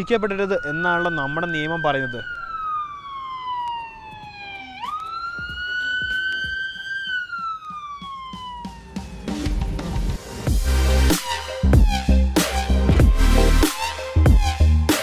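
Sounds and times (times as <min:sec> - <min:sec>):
police siren wailing: 0:00.0 - 0:10.5, 0:12.8 - 0:15.0
electronic music with heavy bass: 0:08.6 - 0:15.0.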